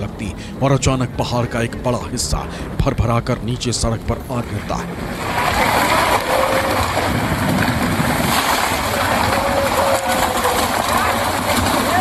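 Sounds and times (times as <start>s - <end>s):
landslide debris rumbling: 4.8s - 12.0s.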